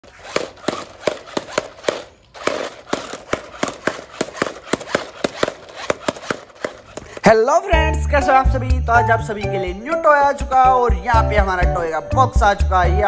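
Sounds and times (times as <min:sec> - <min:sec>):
toy car sharp clacks: 0:00.0 - 0:07.2.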